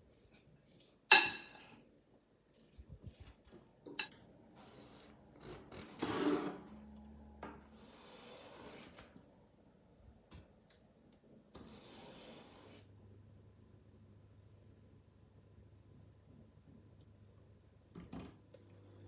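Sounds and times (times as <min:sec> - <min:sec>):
spoon clinking on glass bowl: 0:01.1 - 0:01.7.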